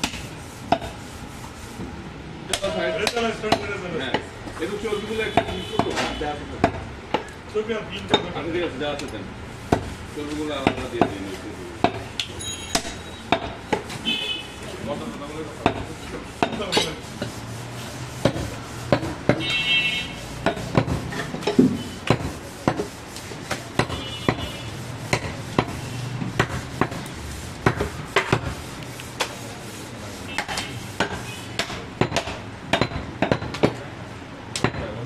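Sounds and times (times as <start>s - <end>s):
cleaver chopping meat and bone: 0.0s - 0.9s, 2.5s - 4.3s, 5.3s - 7.4s, 9.6s - 14.0s, 15.6s - 17.4s, 18.2s - 19.5s, 20.3s - 29.4s, 30.3s - 33.8s.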